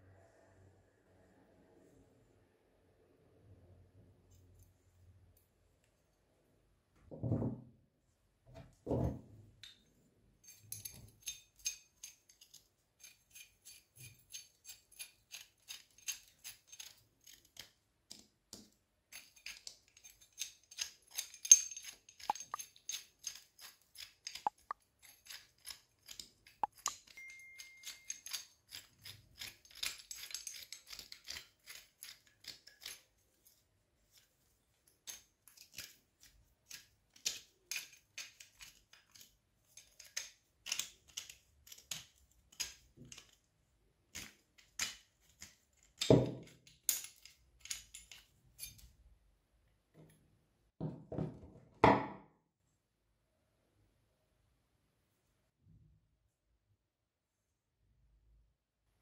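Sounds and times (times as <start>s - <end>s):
pipe wrench clicks and scrapes: 10.4s - 43.4s.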